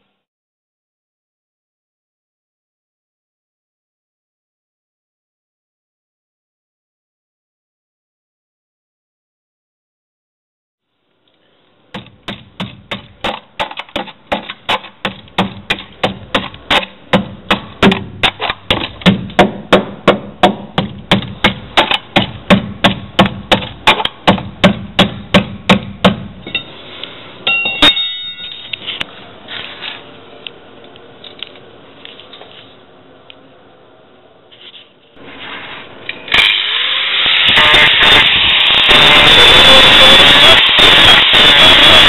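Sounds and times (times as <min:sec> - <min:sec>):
sharp metal clank: 0:27.5 - 0:28.8
hammer blows: 0:37.4 - 0:42.0.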